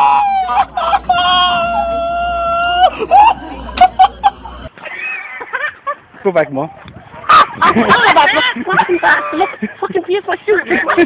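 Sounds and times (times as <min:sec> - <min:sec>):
person shrieking: 0:00.0 - 0:04.7.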